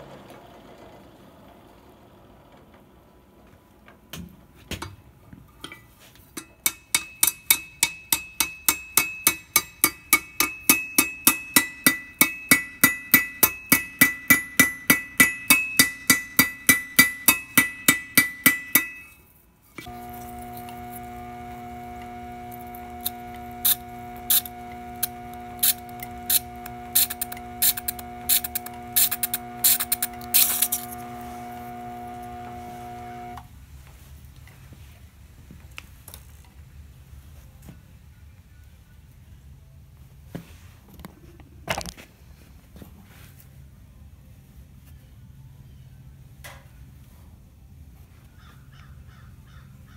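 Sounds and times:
hammer ringing on anvil: 6.4 - 19.2
drone of held tones: 19.8 - 33.5.

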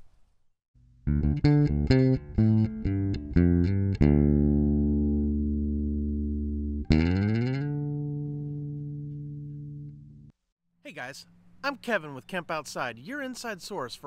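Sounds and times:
electric guitar: 1.1 - 10.3.

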